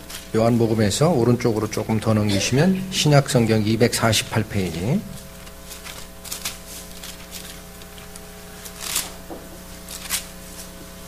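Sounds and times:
low electrical hum: 0.0s - 11.0s
book pages rustling: 4.6s - 10.9s.

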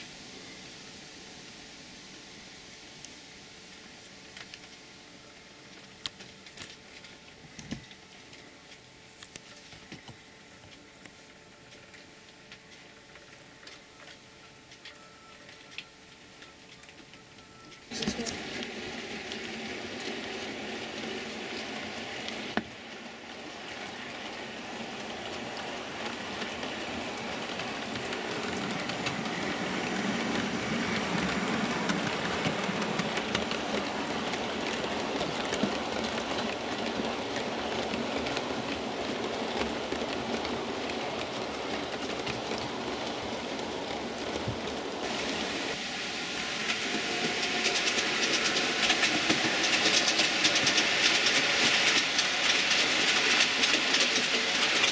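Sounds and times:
brighter train rattle: 9.7s - 54.9s
model train wheels rattling: 17.7s - 45.8s, 46.6s - 54.9s.

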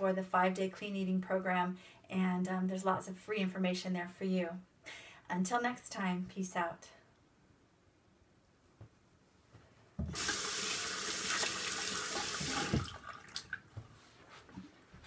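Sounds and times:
tap water running: 10.0s - 13.7s.

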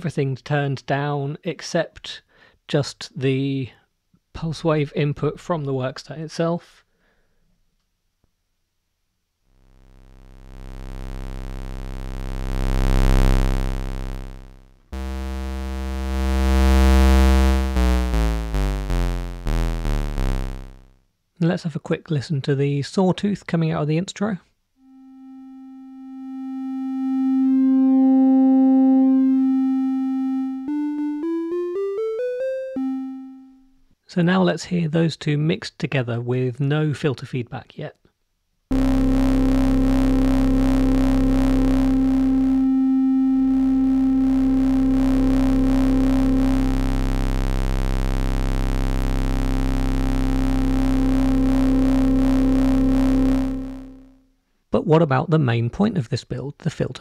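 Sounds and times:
synthesizer sawtooth tone: 9.9s - 20.9s, 24.8s - 33.6s, 38.7s - 54.2s.

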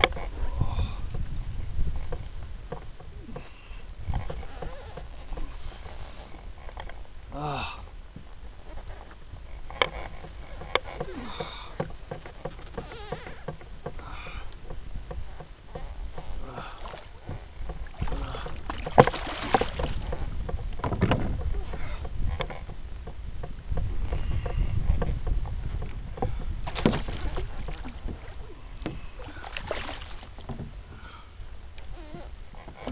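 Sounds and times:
water lapping against hull: 0.0s - 32.9s
water splashing: 15.7s - 22.6s, 26.0s - 32.9s.

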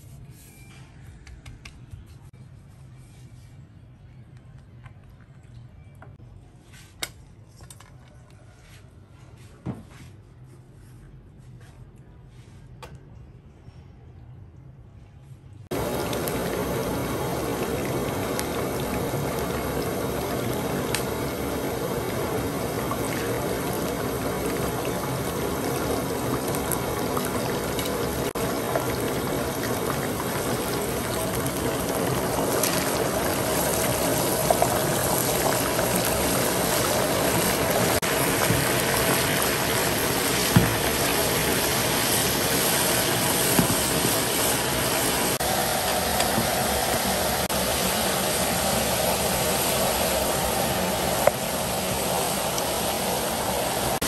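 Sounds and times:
water running: 15.7s - 54.0s.

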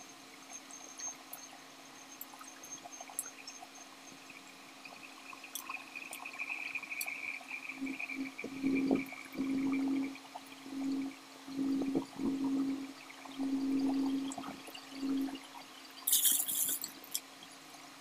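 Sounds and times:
low pulsing hum: 7.5s - 16.9s.

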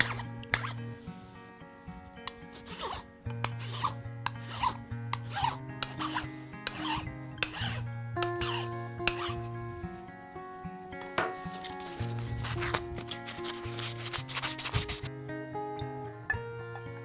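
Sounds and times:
hand file rasping on wood: 0.0s - 0.8s, 2.3s - 9.5s.

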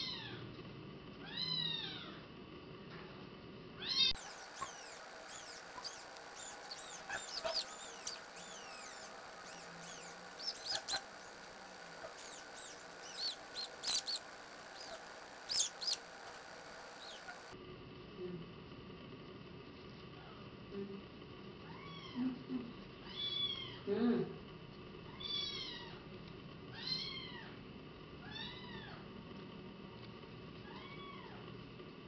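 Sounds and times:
kitten mewing: 3.9s - 17.6s.

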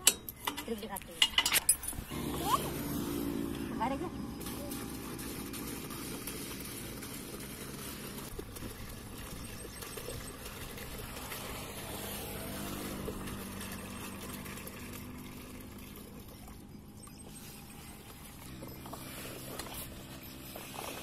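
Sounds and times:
engine humming: 1.8s - 21.0s
water pouring into plastic pipe: 4.4s - 19.2s.

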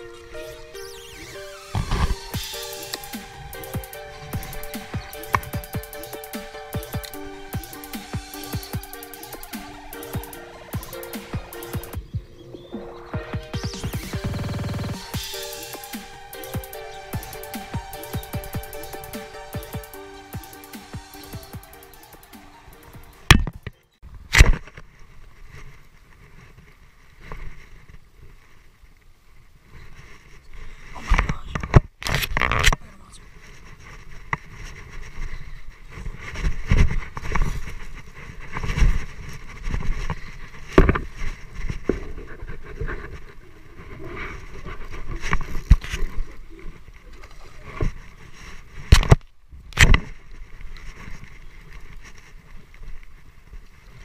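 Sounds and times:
sharp clicks: 1.7s - 12.0s.

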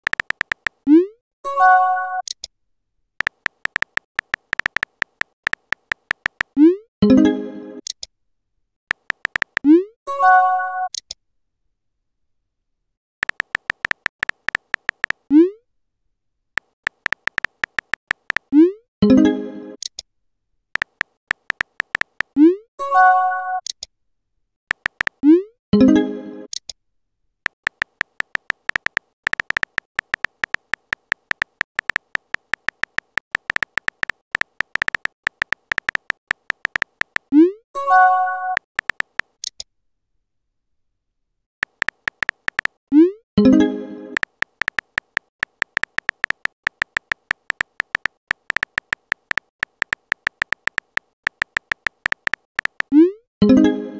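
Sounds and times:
phone keyboard typing clicks: 0.0s - 0.8s, 3.2s - 6.6s, 8.9s - 9.7s, 13.2s - 15.3s, 16.6s - 18.6s, 20.8s - 22.4s, 24.7s - 25.2s, 27.5s - 37.4s, 38.4s - 39.6s, 41.6s - 42.8s, 44.2s - 53.0s.

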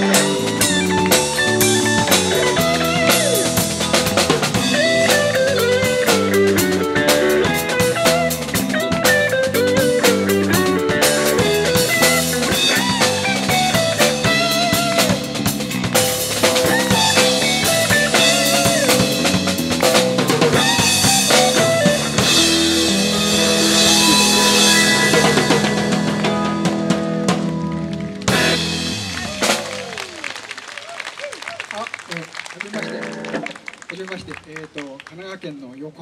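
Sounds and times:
lead melody with bending notes: 0.0s - 29.6s
bass line: 0.0s - 30.2s
drum kit with rimshots: 0.0s - 30.2s
jazz-funk band playing: 0.0s - 30.4s, 32.7s - 33.8s.

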